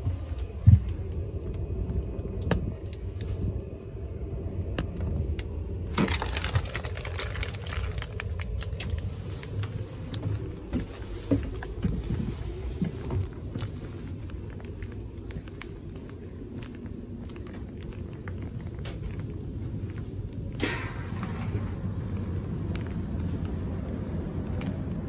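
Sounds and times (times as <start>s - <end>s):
train running rumble: 0.0s - 25.0s.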